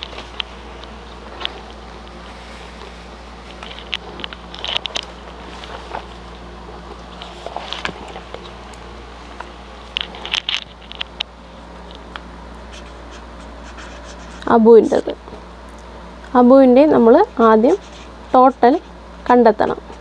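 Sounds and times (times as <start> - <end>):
low steady hum: 0.0 - 20.0
paper rustling: 2.3 - 6.2.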